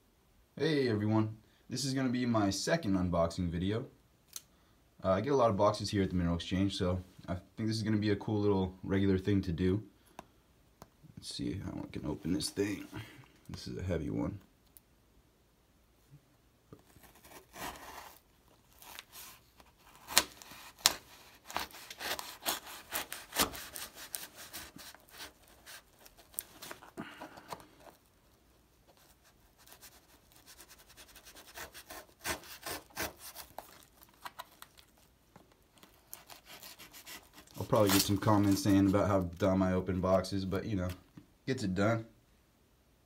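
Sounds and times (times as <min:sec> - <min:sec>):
knife cutting cardboard and tape: 0:16.8 - 0:28.0, 0:28.9 - 0:35.1, 0:35.8 - 0:39.0.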